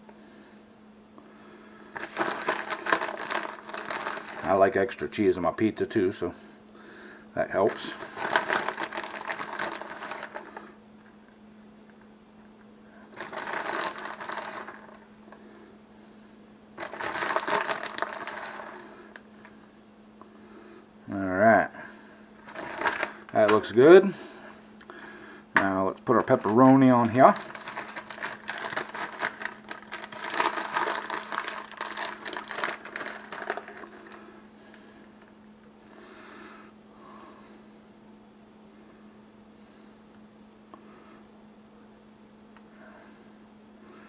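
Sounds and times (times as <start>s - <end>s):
faint steady hum: 0.0s - 44.0s
plastic bag crinkling: 1.9s - 5.0s, 7.6s - 10.8s, 13.1s - 15.4s, 16.8s - 19.7s, 22.4s - 24.4s, 26.0s - 35.3s.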